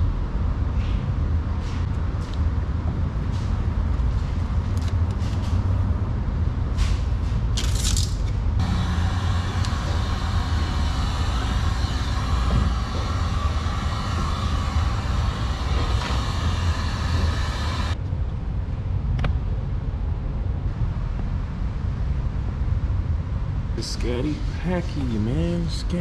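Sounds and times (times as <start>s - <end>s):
steady low rumble: 0.0s - 7.6s, 8.2s - 26.0s
heat gun blowing: 8.6s - 18.0s.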